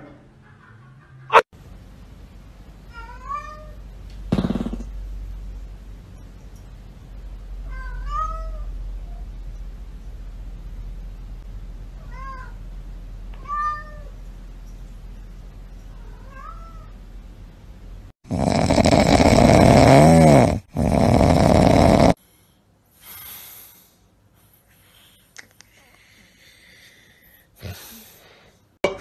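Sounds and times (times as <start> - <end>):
cat meowing: 7.7 - 8.7.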